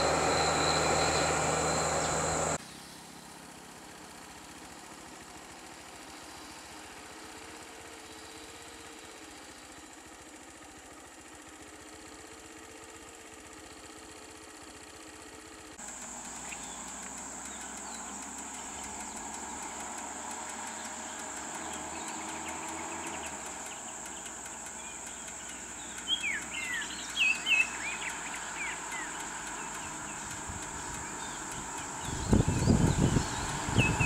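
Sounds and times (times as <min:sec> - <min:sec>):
bird chirping: 0:00.0 - 0:02.6, 0:16.3 - 0:19.8, 0:20.6 - 0:34.0
high-pitched drone: 0:00.0 - 0:02.6.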